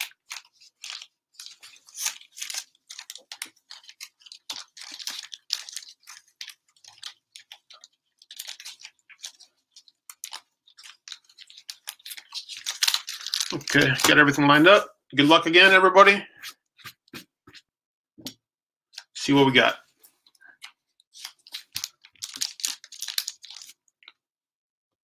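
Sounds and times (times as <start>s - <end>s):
card packs crinkling: 0.0s - 16.1s, 19.0s - 23.9s.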